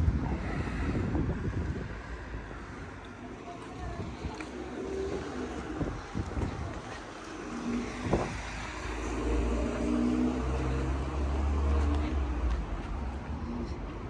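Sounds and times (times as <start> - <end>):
car driving past: 7.3 - 13.7.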